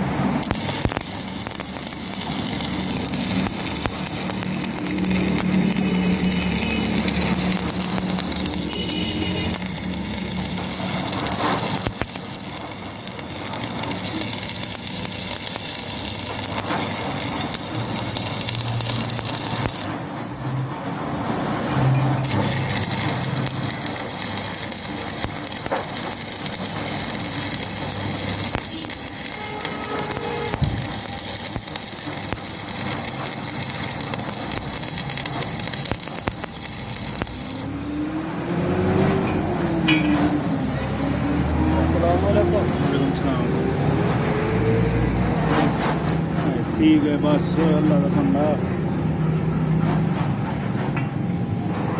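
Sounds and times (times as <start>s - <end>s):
welding arc crackling: 0.0s - 19.9s, 21.6s - 39.0s.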